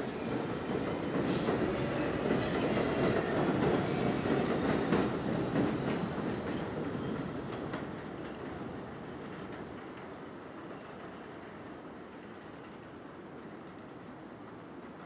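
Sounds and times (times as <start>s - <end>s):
high hiss: 0.0s - 6.3s
train wheels rumbling on track: 0.0s - 15.0s.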